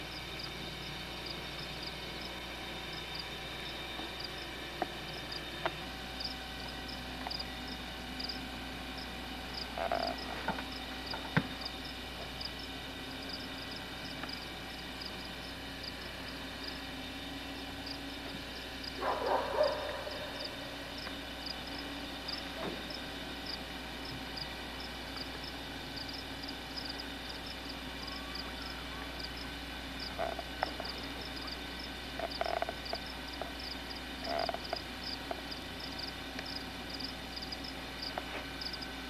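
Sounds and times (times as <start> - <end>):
faint steady hum: 0.0 - 39.0
frogs chirping: 0.0 - 39.0.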